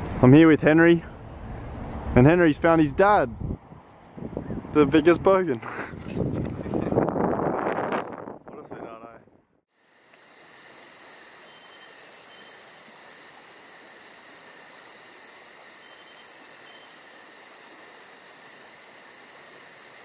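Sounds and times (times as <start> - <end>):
crickets trilling: 9.7 - 20.0.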